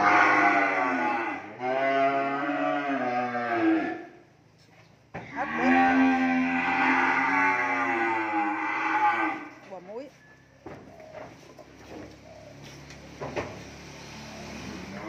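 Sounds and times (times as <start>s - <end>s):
cattle mooing: 0.0s - 4.2s, 5.3s - 9.6s, 14.7s - 15.0s.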